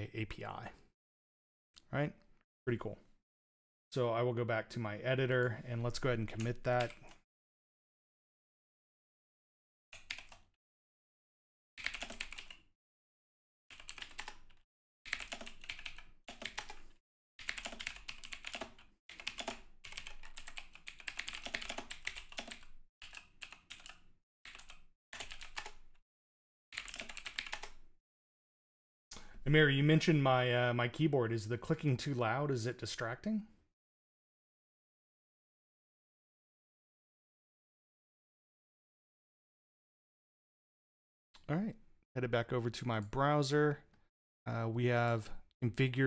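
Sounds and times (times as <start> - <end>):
typing on computer keyboard: 10.0 - 10.4, 11.8 - 12.6, 13.7 - 25.8, 26.8 - 27.8.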